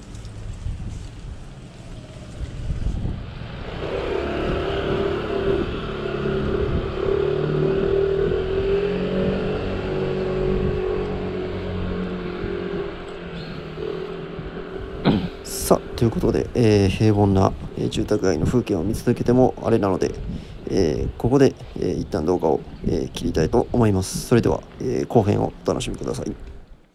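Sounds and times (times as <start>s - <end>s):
motor scooter passing by: 0.1s - 18.0s.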